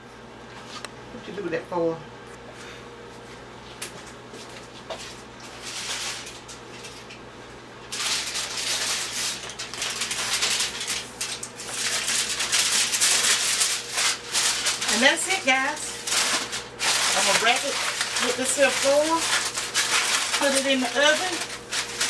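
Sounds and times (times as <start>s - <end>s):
aluminium foil crinkling: 4.4s - 7.2s, 7.8s - 22.0s.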